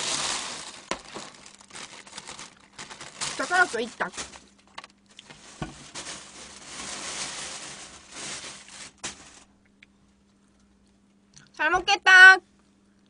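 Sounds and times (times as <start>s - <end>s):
plastic bag rustling: 0.0s - 9.6s.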